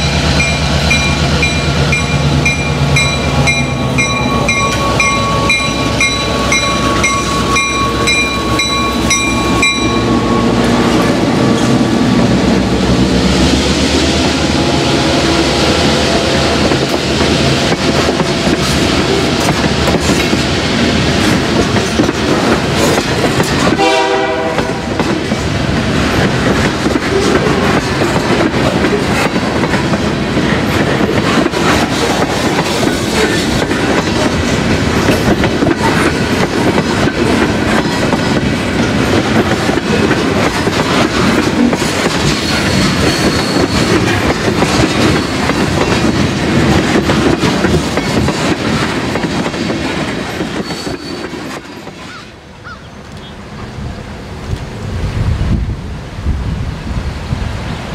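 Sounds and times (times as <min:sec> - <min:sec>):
wheels clacking over rail joints: 0:00.0 - 0:13.0, 0:14.2 - 0:53.2
freight train wheels rumbling: 0:00.0 - 0:57.9
train horn blast: 0:03.4 - 0:11.7, 0:23.6 - 0:25.0.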